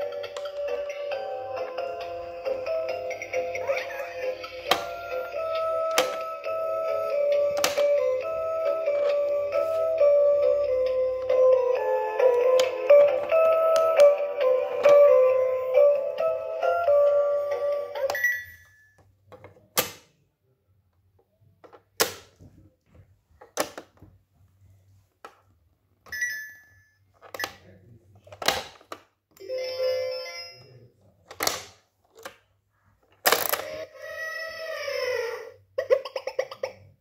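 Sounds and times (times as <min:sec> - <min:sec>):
electronic toy tune: 0:00.0 - 0:18.8
plastic toy clicks and snaps: 0:07.5 - 0:08.0, 0:22.0 - 0:22.3, 0:31.3 - 0:32.4, 0:33.2 - 0:33.8.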